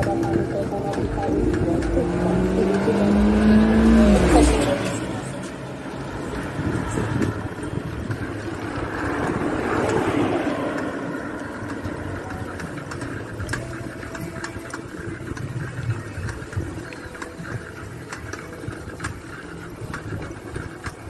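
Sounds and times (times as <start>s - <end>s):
car passing close by: 0.0s - 13.5s
vehicle engine and road noise: 0.0s - 21.0s.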